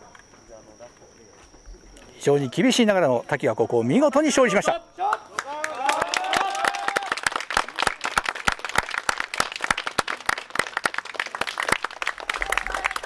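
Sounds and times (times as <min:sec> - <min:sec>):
small group applauding: 0:05.0 - 0:13.0.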